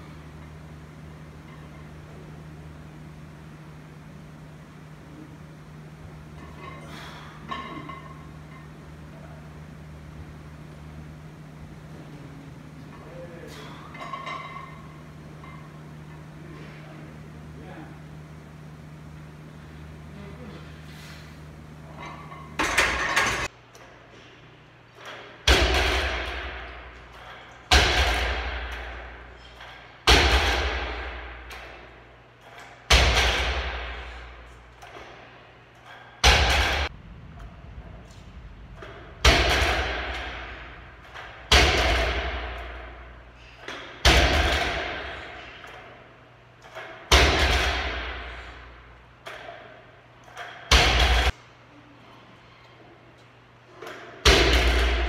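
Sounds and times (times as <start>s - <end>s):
barbell thumping on rubber floor: 38.8s - 43.0s, 43.7s - 45.3s.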